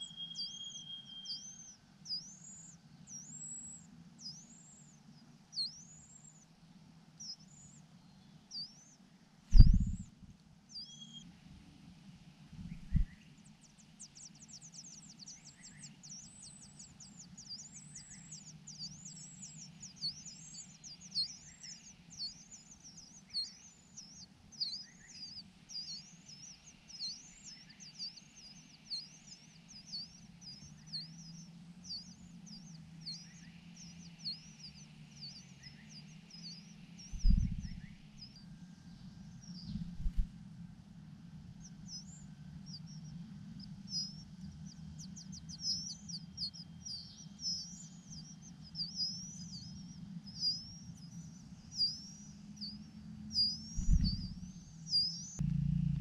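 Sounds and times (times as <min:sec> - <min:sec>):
low thump: 0:09.5 - 0:10.0, 0:12.6 - 0:13.1, 0:37.2 - 0:37.9, 0:39.8 - 0:40.3, 0:53.8 - 0:54.6
nestlings chirping: 0:09.5 - 0:10.1, 0:37.2 - 0:38.0, 0:53.8 - 0:54.6.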